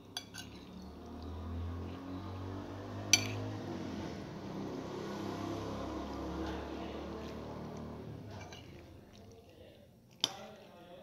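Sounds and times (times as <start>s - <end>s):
metal spoon clinking ceramic bowl: 0.0s - 0.8s, 3.1s - 3.4s.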